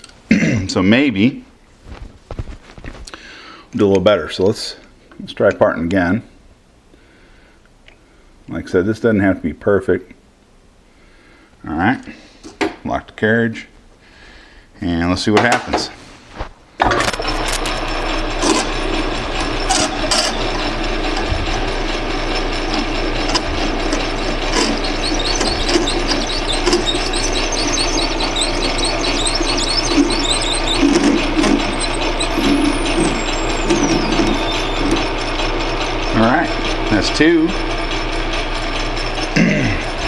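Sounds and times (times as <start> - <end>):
short high squeaks: 16.8 - 40.0
metal lathe motor hum: 16.9 - 40.0
parting tool cutting brass: 17.1 - 37.7.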